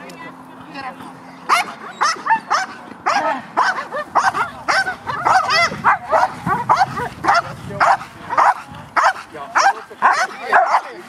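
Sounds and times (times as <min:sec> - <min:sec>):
dog barking rapidly: 0:01.5 - 0:11.0.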